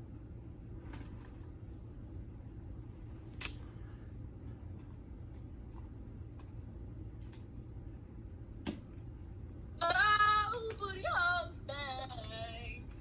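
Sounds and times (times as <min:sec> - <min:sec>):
low hum: 0:00.0 - 0:13.0
woman singing through phone speaker: 0:09.8 - 0:12.9.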